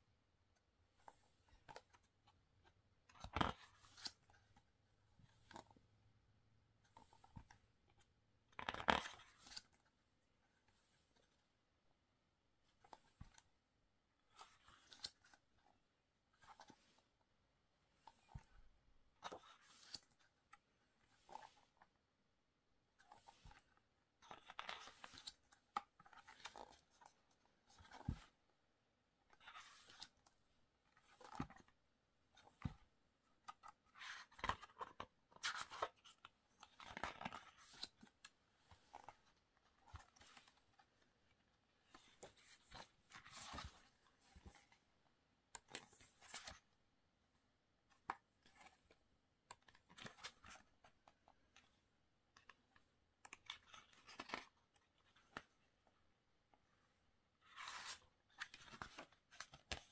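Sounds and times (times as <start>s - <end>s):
pages turning: 3.1s - 4.4s, 8.6s - 9.8s, 14.3s - 15.4s, 19.2s - 21.9s, 23.0s - 28.4s, 29.3s - 30.3s, 30.9s - 31.8s, 32.4s - 41.0s, 41.8s - 44.7s, 45.6s - 46.7s, 53.2s - 55.5s, 57.4s - 59.9s.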